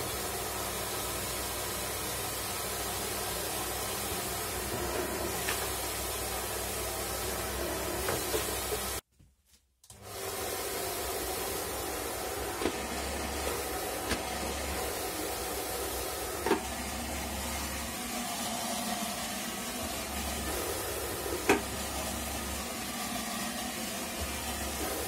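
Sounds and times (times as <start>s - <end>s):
blower air rushing: 10.0s - 25.0s.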